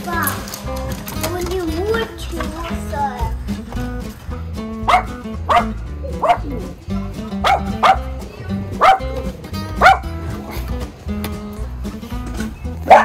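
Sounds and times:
background music: 0.0s - 13.0s
dogs barking: 4.8s - 10.8s, 12.8s - 13.0s.

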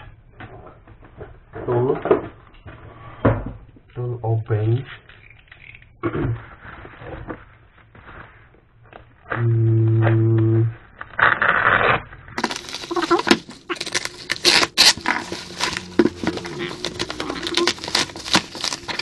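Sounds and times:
scraping and crackling clicks: 4.9s - 9.5s, 10.1s - 19.0s
knife cutting plastic: 12.4s - 19.0s
plastic sack crinkling: 12.4s - 19.0s.

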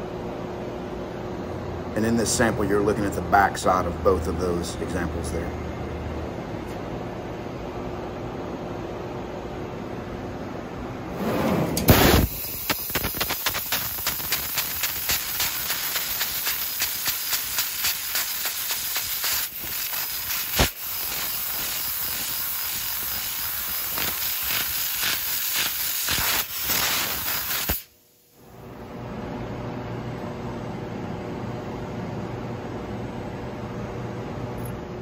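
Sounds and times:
laser cutting steel hiss: 11.9s - 27.9s.

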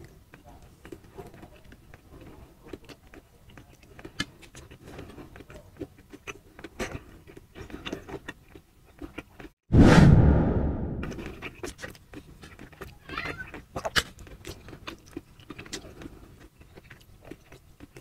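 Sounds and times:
chewing with mouth closed: 0.0s - 9.6s, 11.2s - 18.0s.

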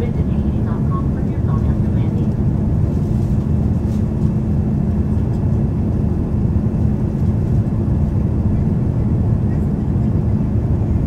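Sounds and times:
constant hum: 0.0s - 11.0s
jet engine drone: 0.0s - 11.0s.

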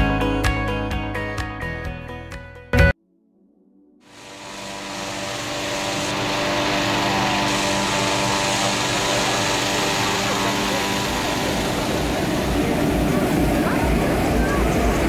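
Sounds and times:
inflator fan humming: 4.1s - 15.0s.

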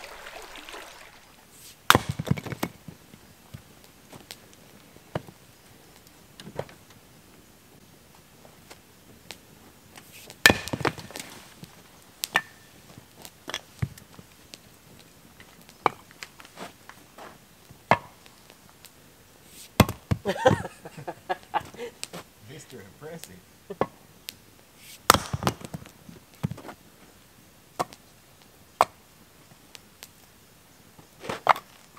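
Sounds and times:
axe splitting wood: 1.9s - 2.8s, 10.4s - 11.3s, 19.8s - 20.3s, 25.0s - 25.9s.

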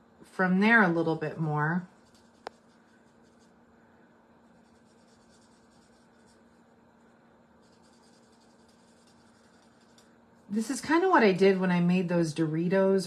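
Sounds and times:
steady low hum: 0.0s - 13.0s
marker scratching on cardstock: 2.0s - 3.6s, 4.6s - 6.5s, 7.6s - 10.0s.

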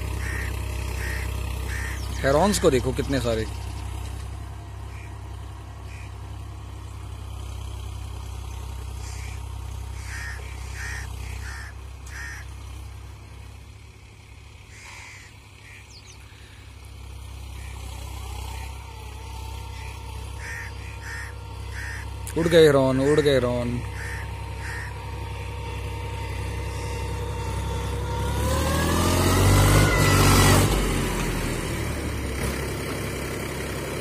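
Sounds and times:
distant tractor engine drone: 0.0s - 34.0s.

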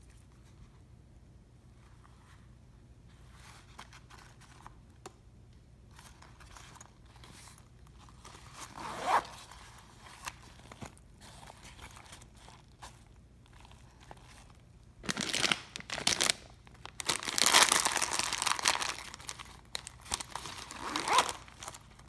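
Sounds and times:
fabric rustling: 5.9s - 14.5s, 17.2s - 21.8s
zipper being pulled: 8.6s - 9.5s, 20.7s - 21.5s.

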